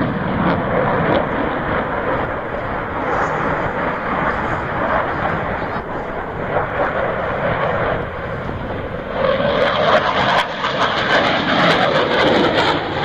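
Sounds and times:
fighter jet engines roaring: 0:00.0 - 0:13.0.

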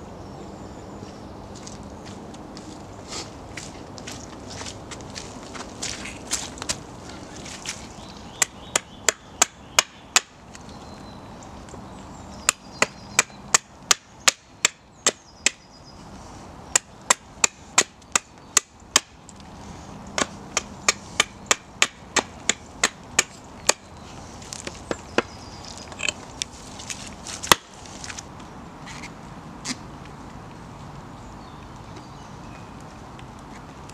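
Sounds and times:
hatchet chopping kindling on wood: 0:08.4 - 0:10.4, 0:12.5 - 0:15.6, 0:16.7 - 0:19.2, 0:20.2 - 0:23.9, 0:27.4 - 0:27.7.

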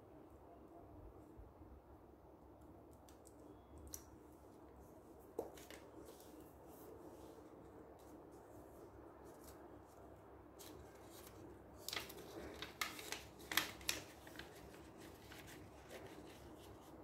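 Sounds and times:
paper rustling and snapping: 0:10.6 - 0:17.0.

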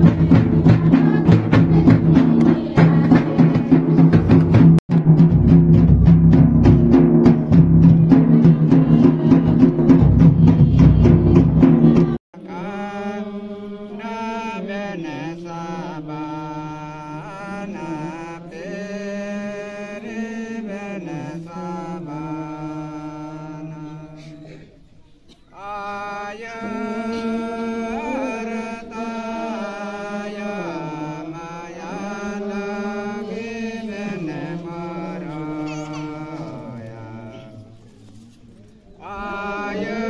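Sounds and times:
person singing chant-like song: 0:00.0 - 0:04.4, 0:06.5 - 0:24.6, 0:25.5 - 0:37.9, 0:38.9 - 0:40.0
barrel drum beating: 0:00.0 - 0:12.2.

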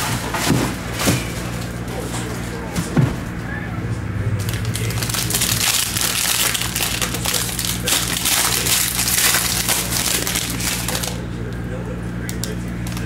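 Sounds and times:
foil wrapper crinkling: 0:04.4 - 0:11.3, 0:12.2 - 0:13.0.

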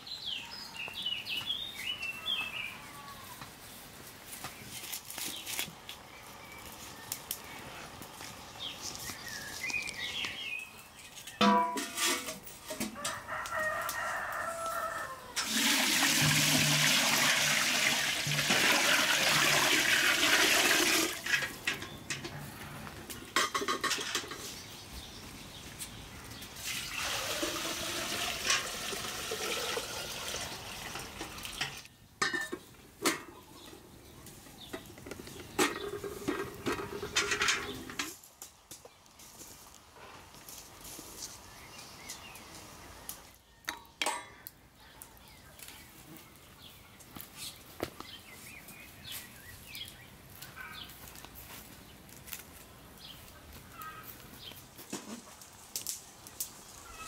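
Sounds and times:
rooster crowing: 0:12.9 - 0:15.5
water poured into pot: 0:15.4 - 0:21.6, 0:26.6 - 0:31.8.

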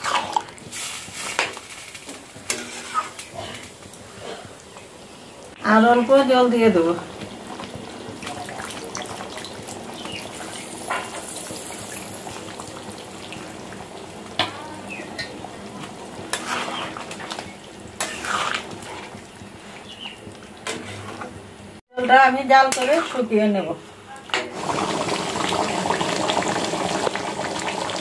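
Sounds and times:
curry sizzling and bubbling: 0:00.0 - 0:28.0
metal spatula scraping a pan: 0:01.2 - 0:03.6, 0:16.3 - 0:19.2, 0:20.6 - 0:21.4, 0:22.6 - 0:23.3.

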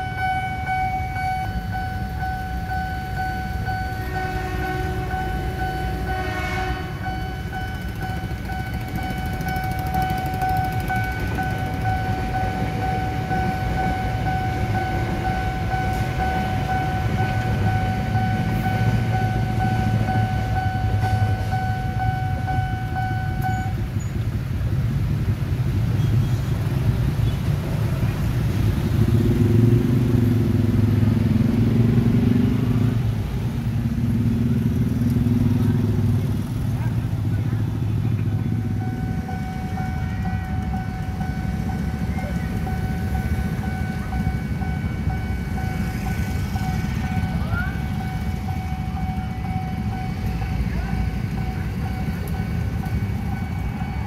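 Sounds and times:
level crossing warning tone: 0:00.0 - 0:24.3, 0:35.8 - 0:54.0
electric train rumbling past: 0:00.0 - 0:54.0
motorcycle engines revving: 0:03.6 - 0:54.0.

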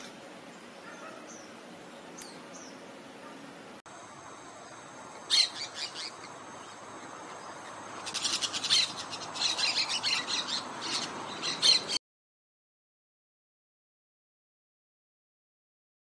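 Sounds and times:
parakeets chattering: 0:05.2 - 0:12.0.

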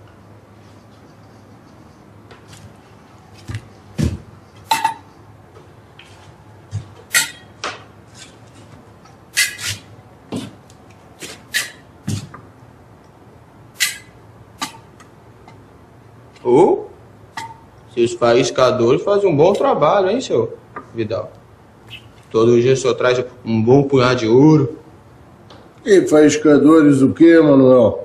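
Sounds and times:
dull thuds: 0:03.4 - 0:04.3.

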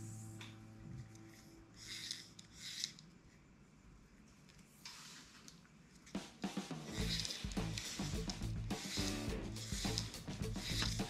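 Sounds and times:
fishing line rustling: 0:07.0 - 0:11.0
reel clicks: 0:09.8 - 0:11.0.

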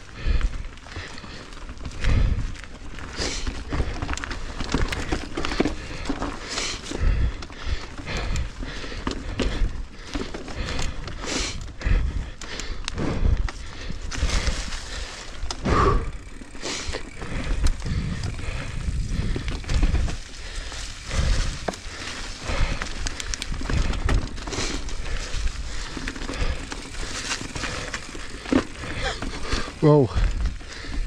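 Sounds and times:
tyres crunching over dirt and leaves: 0:00.0 - 0:31.0
bike knocks and rattles: 0:00.2 - 0:12.1, 0:13.0 - 0:31.0
wind rumble on microphone: 0:17.2 - 0:25.8.

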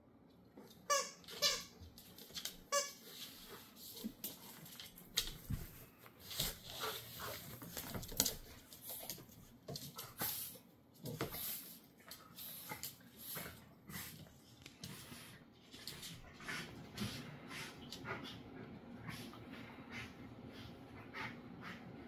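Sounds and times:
dogs scuffling: 0:01.8 - 0:10.3.

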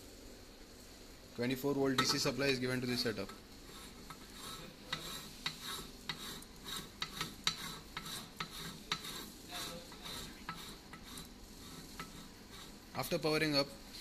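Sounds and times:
metal cover scraping while screwed: 0:03.2 - 0:09.3.

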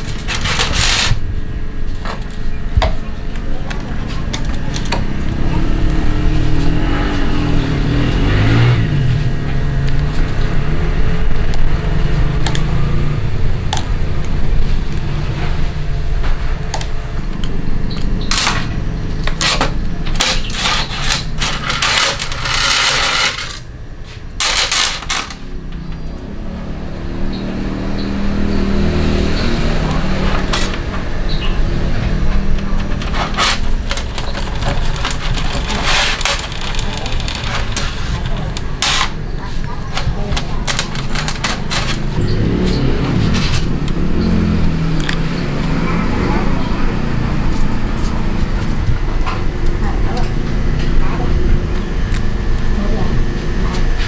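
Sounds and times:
steady low rumble: 0:00.0 - 0:20.3.

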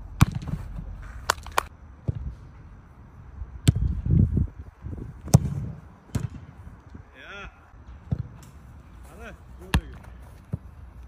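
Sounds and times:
football being kicked: 0:00.2 - 0:00.9, 0:03.6 - 0:03.9, 0:05.2 - 0:06.5, 0:09.6 - 0:10.7.

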